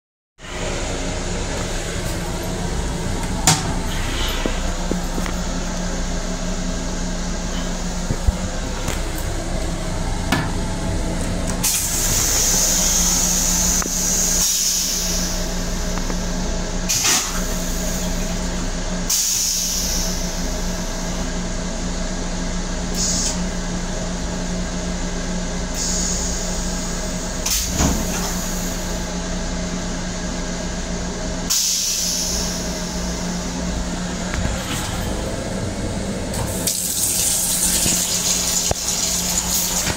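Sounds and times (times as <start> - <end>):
steady hum: 0.4 - 19.1, 19.8 - 39.9
toilet rinse spray hissing: 36.5 - 39.9.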